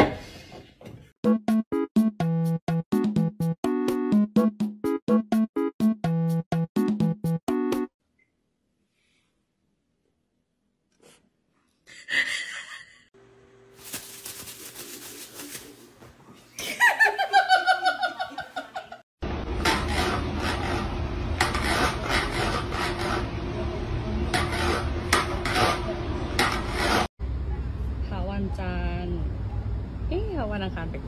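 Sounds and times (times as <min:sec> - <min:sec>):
person laughing: 0:11.9 - 0:13.1
rustling: 0:13.8 - 0:16.4.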